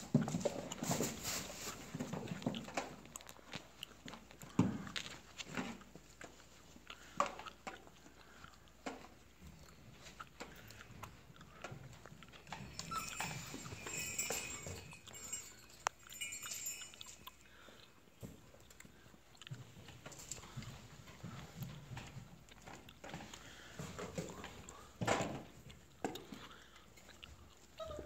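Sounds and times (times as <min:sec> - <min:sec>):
paws scuffling on plastic sheet: 0:00.3 - 0:02.3
toys clicking and clinking: 0:11.6 - 0:17.5.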